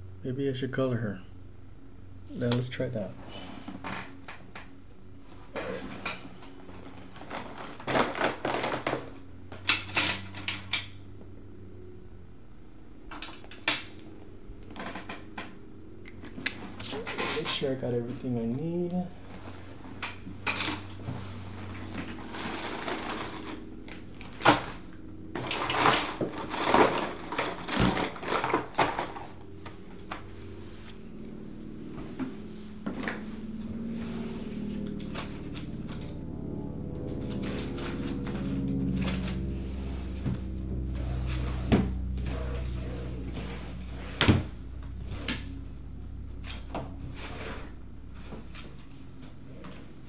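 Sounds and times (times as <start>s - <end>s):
steady low hum: 0.0s - 50.0s
art supplies clattering and rustling: 5.5s - 10.7s, 19.3s - 24.8s, 25.4s - 29.4s.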